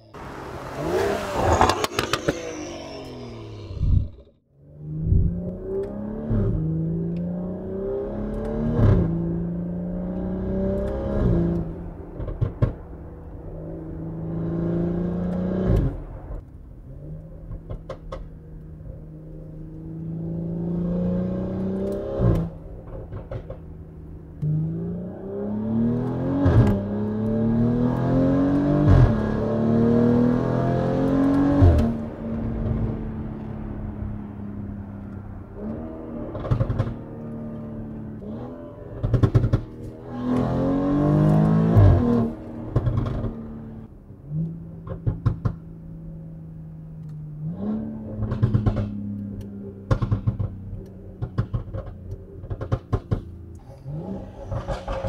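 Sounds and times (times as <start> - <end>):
car engine accelerating: 0.0 - 55.0
exhaust cracks: 0.1 - 4.4, 31.0 - 43.9, 48.1 - 55.0.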